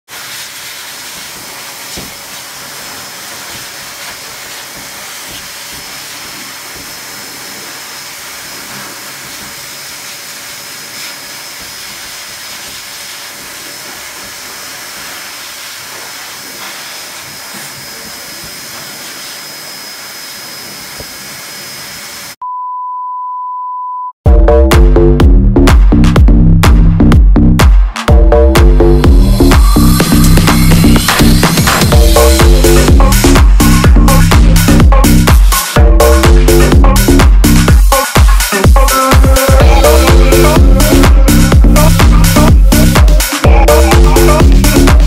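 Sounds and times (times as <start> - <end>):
pet dryer blowing air: 0.1 - 22.4
electronic beep: 22.4 - 24.2
loud electronic music: 24.3 - 45.0.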